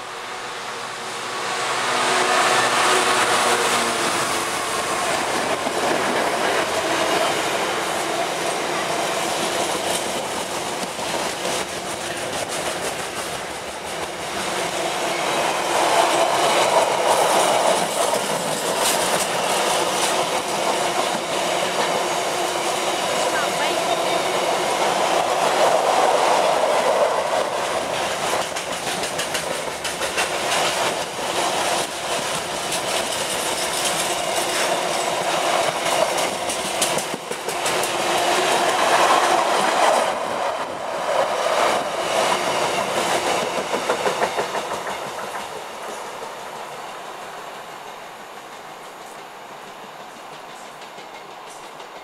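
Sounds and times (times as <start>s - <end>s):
freight train rumbling past: 0.0s - 52.0s
wheels clattering over rail joints: 25.2s - 46.4s.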